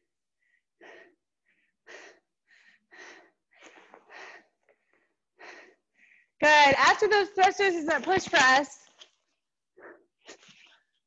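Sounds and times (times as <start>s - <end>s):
hard breathing puffs: 0.4s - 6.4s.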